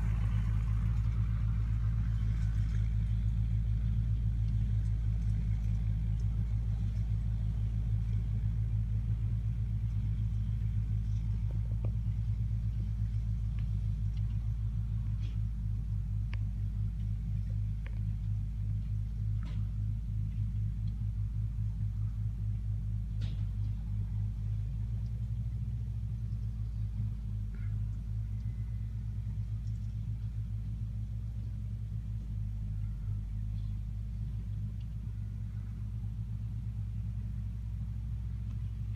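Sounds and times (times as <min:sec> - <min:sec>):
tractor diesel engine rumbling: 0:00.0 - 0:38.9
faint ticks: 0:16.3 - 0:17.2.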